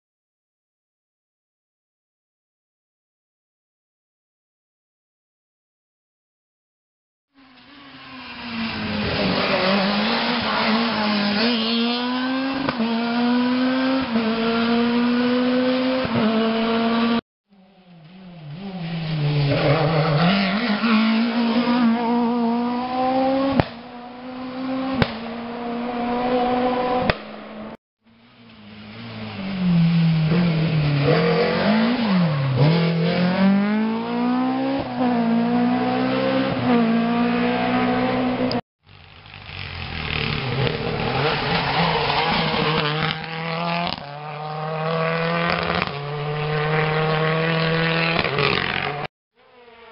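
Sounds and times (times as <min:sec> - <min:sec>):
rally car engine revving: 0:07.8 - 0:17.2, 0:18.3 - 0:27.8, 0:28.7 - 0:38.6, 0:39.4 - 0:49.9.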